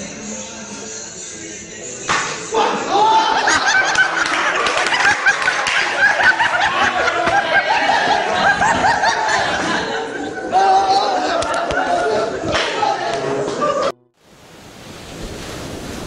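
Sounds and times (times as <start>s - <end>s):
young men laughing: 2.4s - 14.0s.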